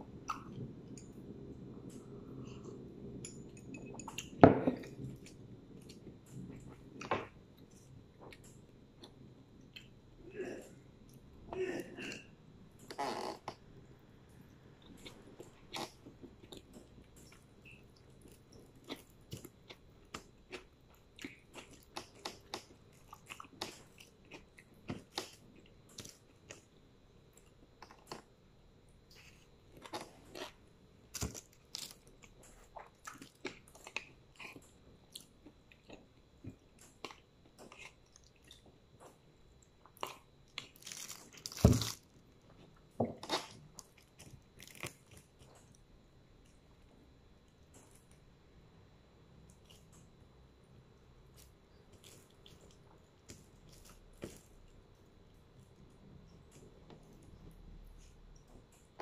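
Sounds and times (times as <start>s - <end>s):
chewing and mouth smacks: 29.1s - 41.6s.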